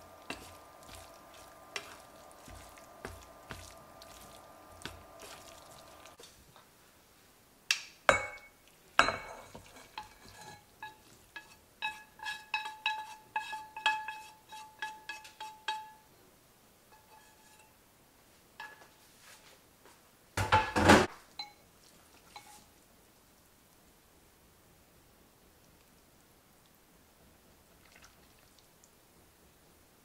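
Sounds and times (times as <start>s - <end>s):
pan clunking against porcelain bowl: 8.1s - 11.0s, 20.4s - 21.6s.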